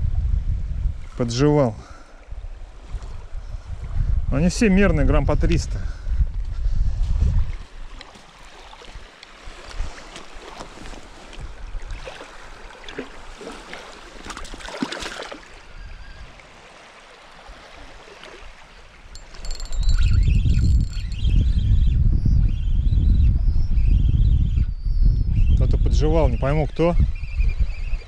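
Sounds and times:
wind buffeting microphone: 0.0 - 14.7, 15.3 - 16.8, 17.4 - 28.0
water lapping at shoreline: 1.0 - 4.1, 6.5 - 19.9.

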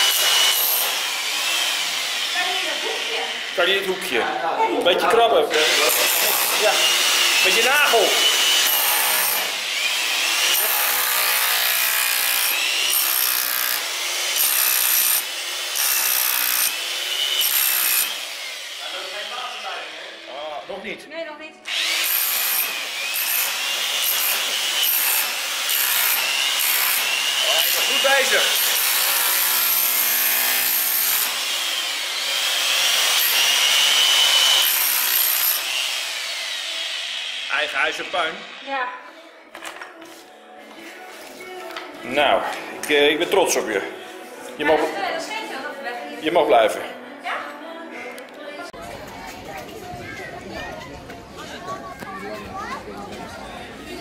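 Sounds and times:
power saw cutting wood: 0.0 - 4.3, 5.0 - 20.8, 21.6 - 38.8.

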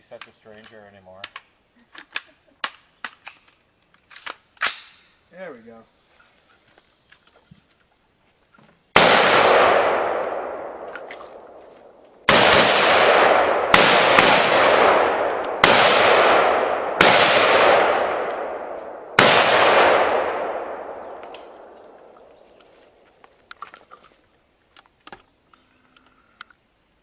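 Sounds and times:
pistol shots echoing: 9.0 - 22.4.

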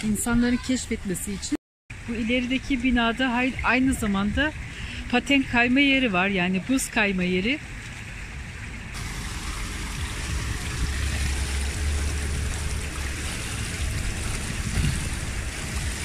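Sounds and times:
pool water rushing and trickling: 0.2 - 16.0
low rumble: 8.3 - 16.0.

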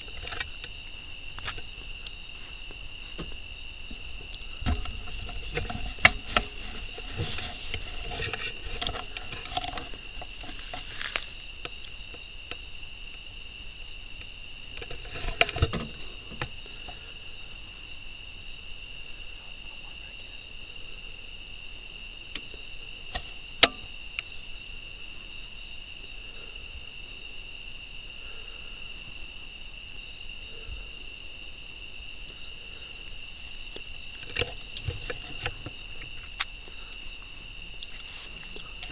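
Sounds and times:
rustling: 0.0 - 12.0, 33.4 - 38.9
crickets chirping: 0.0 - 38.9
sharp clicks and knocks: 3.1 - 11.7, 23.1 - 23.9.

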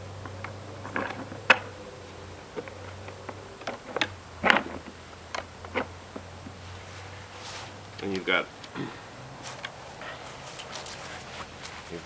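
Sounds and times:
steady low hum: 0.0 - 12.0
handling clicks and knocks: 0.2 - 1.8, 2.5 - 6.6.

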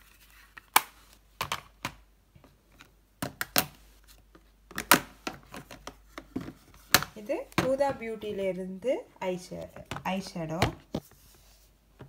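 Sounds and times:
plastic cases clacking: 4.7 - 8.4.

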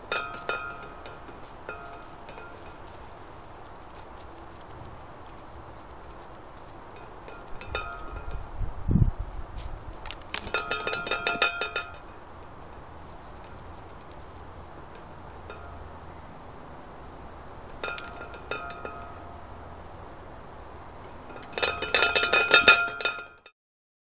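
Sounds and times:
metal bird feeder clinking: 0.0 - 3.1, 6.9 - 8.5, 10.1 - 12.3, 14.9 - 16.2, 17.7 - 19.5, 21.0 - 23.5.

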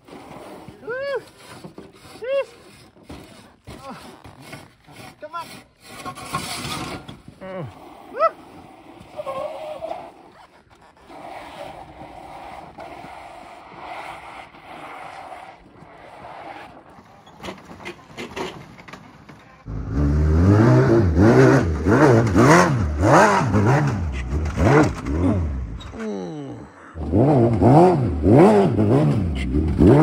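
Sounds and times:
motorcycle engine revving: 19.6 - 25.9, 27.0 - 30.0.

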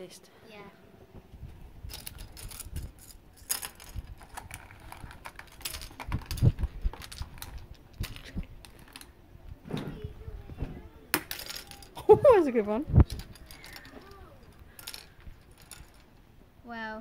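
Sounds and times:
plastic pieces clicking and rattling: 1.9 - 9.1, 11.2 - 12.1, 13.0 - 16.2.

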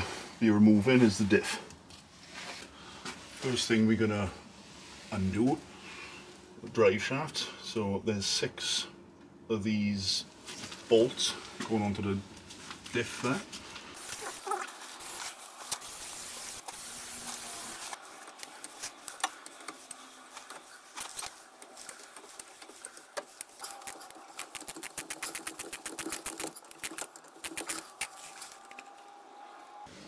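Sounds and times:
ratchet clicking rapidly: 23.4 - 28.1.

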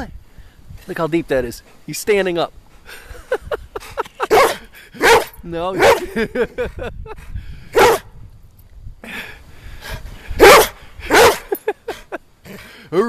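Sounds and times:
dog barking: 4.3 - 6.1, 7.8 - 8.0, 10.4 - 11.6.

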